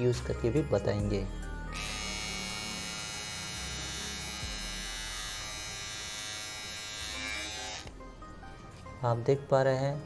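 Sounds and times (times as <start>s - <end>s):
beard trimmer buzzing: 1.7s - 8.0s.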